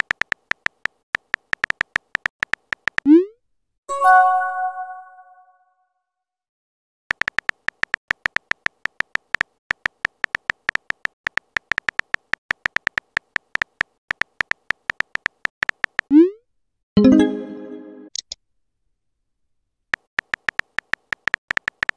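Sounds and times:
phone keyboard typing clicks: 0.0 - 3.1, 7.1 - 16.1, 20.0 - 21.9.

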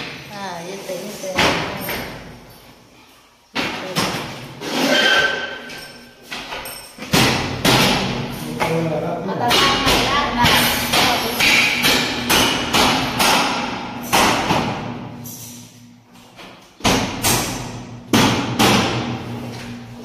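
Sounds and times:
sharp knocks: 7.0 - 8.3, 9.5 - 15.0, 16.8 - 19.2.

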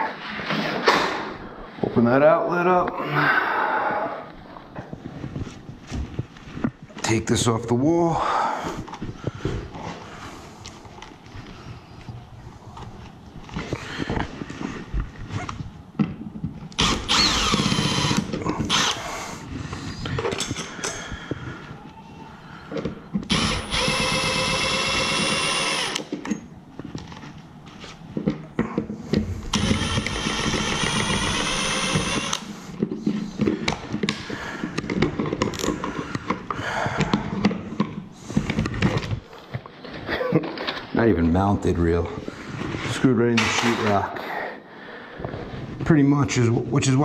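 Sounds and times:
cordless driver whining: 16.7 - 19.1, 23.2 - 26.1, 29.4 - 32.5.

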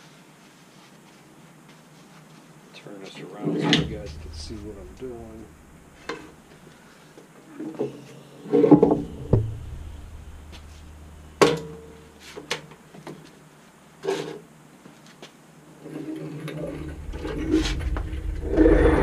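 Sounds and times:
thud with low boom: 3.8 - 6.6, 9.0 - 11.5, 16.7 - 19.0.

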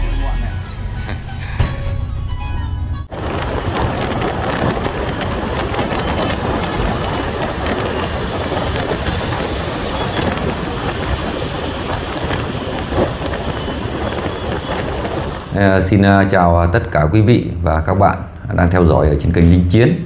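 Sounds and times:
surrounding traffic: 0.0 - 15.6
vehicle road noise: 0.0 - 15.6.

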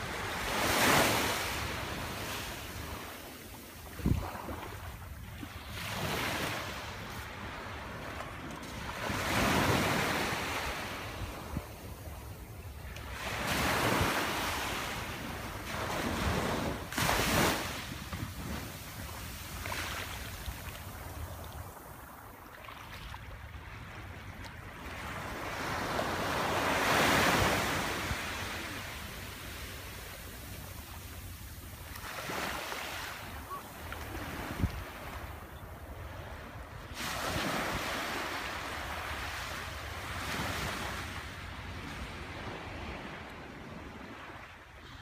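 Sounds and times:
small waves washing on sand: 0.0 - 12.2, 12.8 - 35.4, 36.3 - 45.0
wind buffeting microphone: 3.9 - 4.6.

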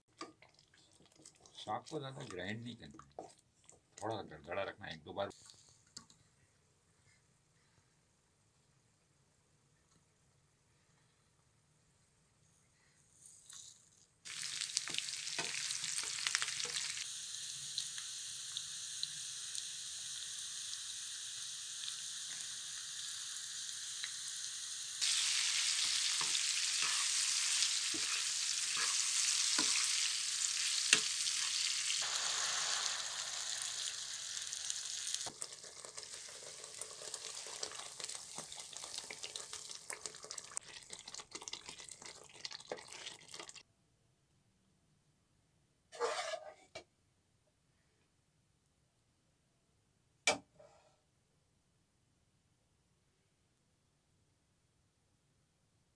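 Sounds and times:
food frying in oil: 14.3 - 43.6
spatula scraping pan: 25.0 - 31.8, 46.0 - 46.8.

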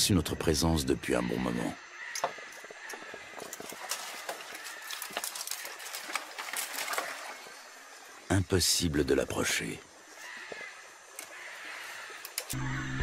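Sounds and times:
dry branches cracking and rustling: 2.0 - 8.2, 10.1 - 12.6.

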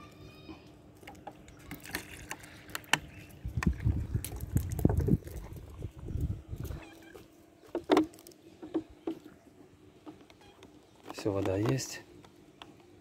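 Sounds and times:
water glugging from plastic bottle: 1.1 - 6.8.

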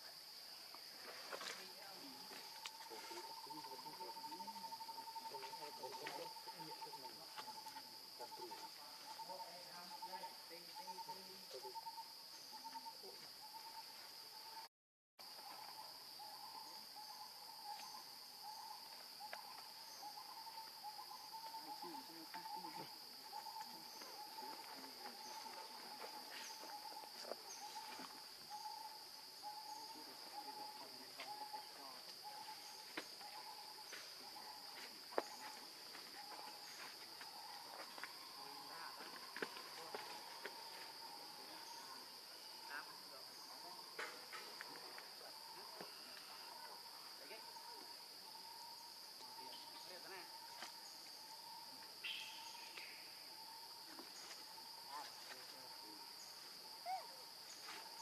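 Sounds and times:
high insect drone: 0.0 - 58.0.

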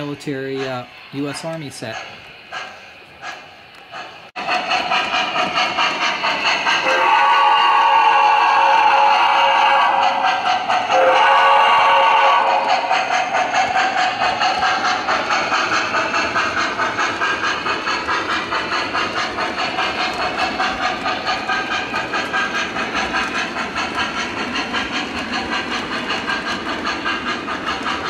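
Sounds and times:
model steam locomotive chuff: 0.0 - 28.0
train rumbling on track: 0.0 - 28.0
train whistle: 6.8 - 12.9.

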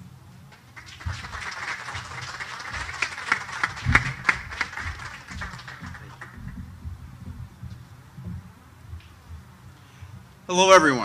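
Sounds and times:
audience applauding: 0.5 - 6.6.

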